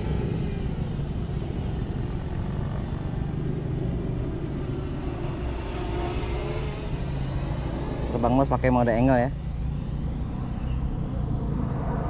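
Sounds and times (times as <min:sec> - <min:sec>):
quadcopter motors droning: 0:00.0 - 0:12.0
low rumble: 0:09.4 - 0:12.0.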